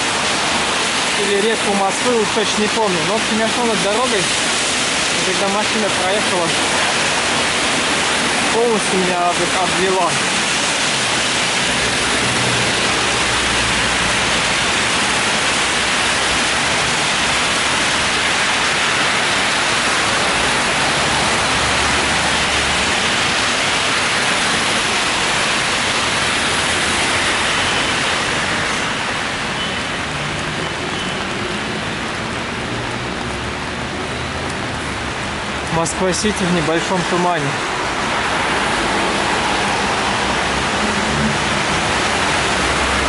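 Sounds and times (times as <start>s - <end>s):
rain hissing: 0.0s - 43.0s
traffic on wet road: 0.0s - 43.0s.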